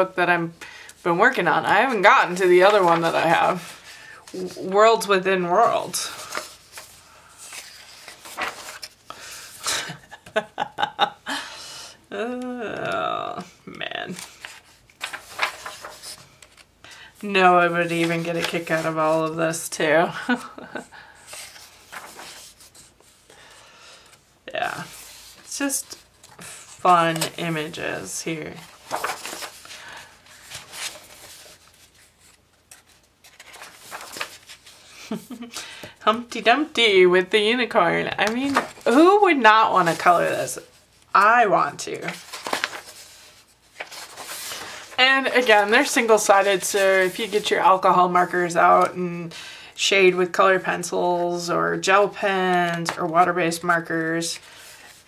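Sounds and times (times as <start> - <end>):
paper rustling: 1.7 - 10.4, 14.1 - 16.7, 17.6 - 20.6, 21.2 - 24.2, 24.8 - 36.9, 38.2 - 49.0, 52.0 - 55.0
book page turning: 6.1 - 9.1, 14.1 - 16.7, 21.3 - 23.2, 28.6 - 35.4, 38.2 - 39.0, 42.0 - 47.5.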